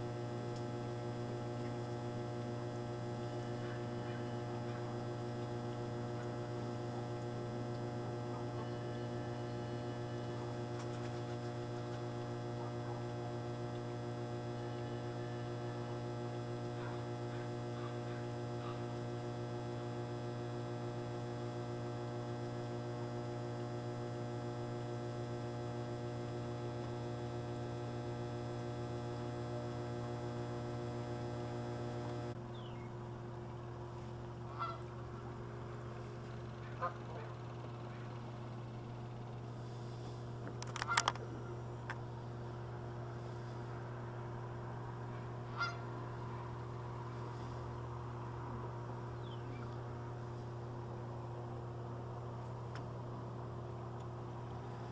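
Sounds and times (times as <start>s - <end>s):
steady low hum: 0.0s - 54.9s
distant goose honks: 34.5s - 34.9s, 45.5s - 46.0s.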